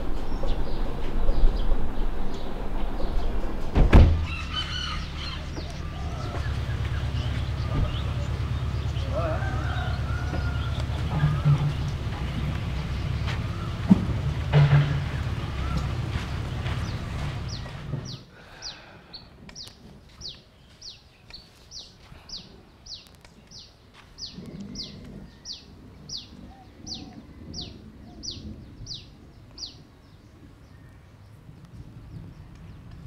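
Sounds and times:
low rumble: 0:00.0 - 0:18.2.

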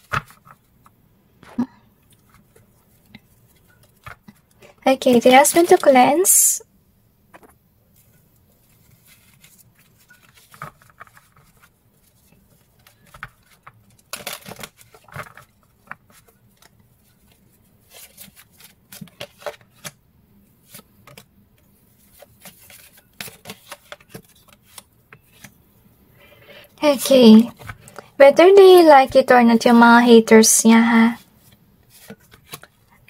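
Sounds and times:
cards being shuffled: 0:00.0 - 0:01.6, 0:02.2 - 0:06.4, 0:07.3 - 0:20.0, 0:20.6 - 0:25.6, 0:27.4 - 0:28.0, 0:31.4 - 0:33.0.

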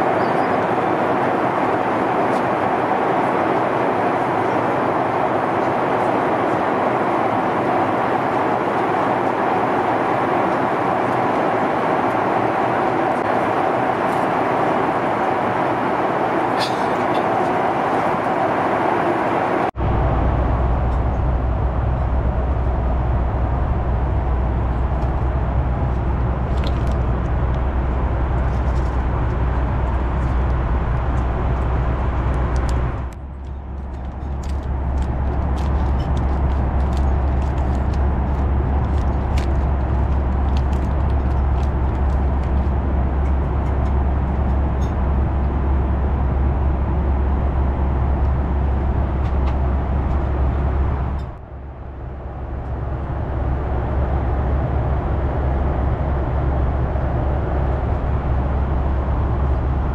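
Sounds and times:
jet engines droning: 0:00.0 - 0:59.9
rushing airflow in aircraft cabin: 0:00.0 - 0:59.9
deep steady hum: 0:19.7 - 0:59.9.

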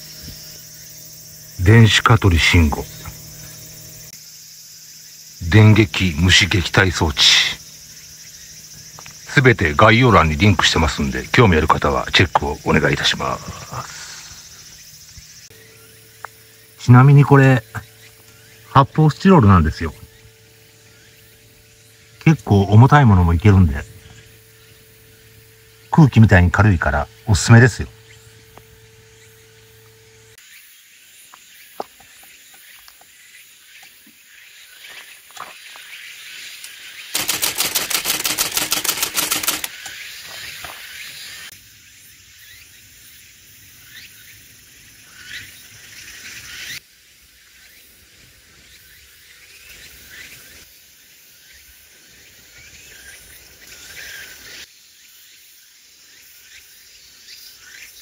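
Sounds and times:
low steady hum: 0:00.0 - 0:04.2, 0:05.2 - 0:30.4
insect chirring: 0:00.0 - 0:58.0.

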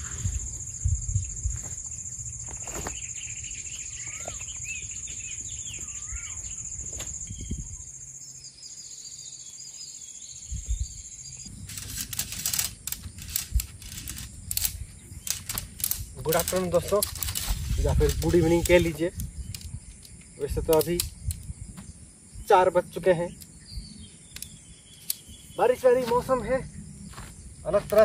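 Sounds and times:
birds calling: 0:00.0 - 0:28.0
high-pitched insect drone: 0:00.0 - 0:28.0
crackling clicks and rustles: 0:11.5 - 0:21.6.

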